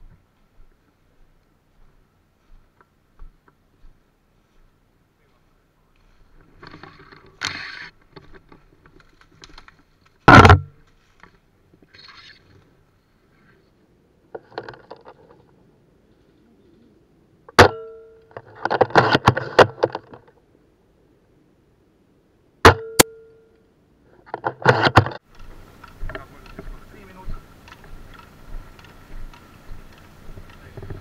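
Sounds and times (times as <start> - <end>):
airsoft rifle shots: 22.6 - 23.2.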